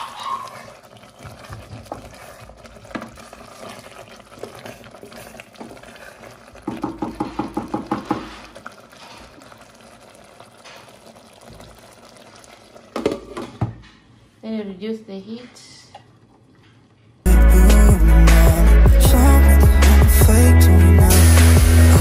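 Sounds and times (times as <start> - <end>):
wooden spoon stirring thick sauce: 0.0 - 11.7
stew simmering in a pot: 0.0 - 14.2.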